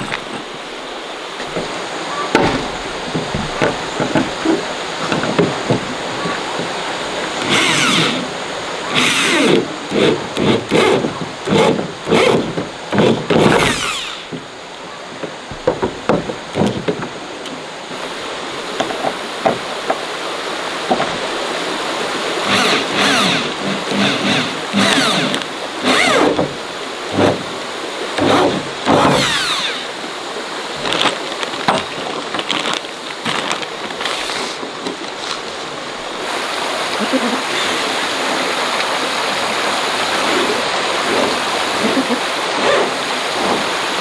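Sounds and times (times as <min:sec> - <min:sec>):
power drill driving screws into metal: 0:07.4 - 0:08.3, 0:08.9 - 0:14.4, 0:22.5 - 0:26.5, 0:28.2 - 0:30.0, 0:37.5 - 0:38.0.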